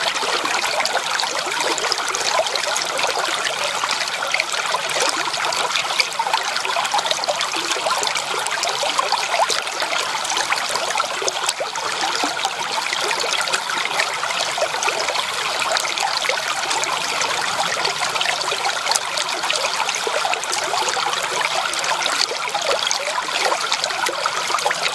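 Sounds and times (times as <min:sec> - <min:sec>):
creek water babbling over stones: 0:00.0 - 0:24.9.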